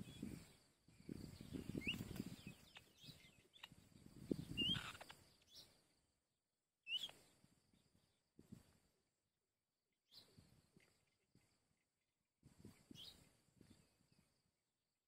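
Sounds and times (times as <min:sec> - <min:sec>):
short rising bird chirps: 0:01.3 - 0:05.9, 0:06.9 - 0:07.3.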